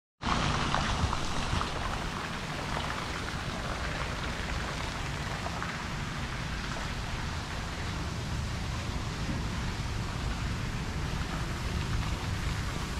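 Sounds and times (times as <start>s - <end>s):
wind on microphone: 0.3s - 3.6s.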